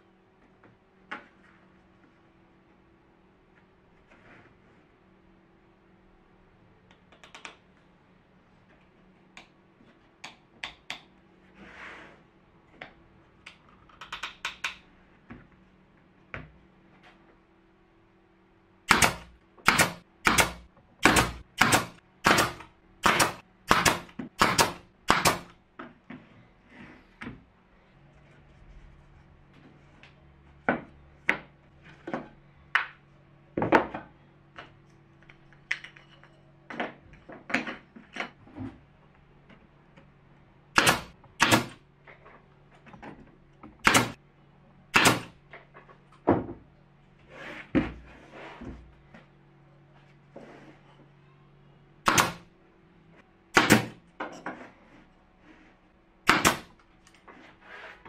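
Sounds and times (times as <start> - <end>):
pneumatic nailer firing: 18.9 - 25.6, 40.8 - 41.8, 43.8 - 44.2, 44.9 - 45.4, 52.0 - 52.5, 53.5 - 54.0, 56.2 - 56.8.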